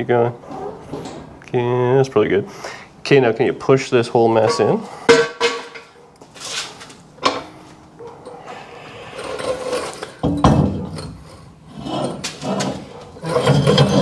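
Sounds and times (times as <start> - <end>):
metal scraping and clanking: 4.4 - 14.0
floor jack rolling on concrete: 8.9 - 14.0.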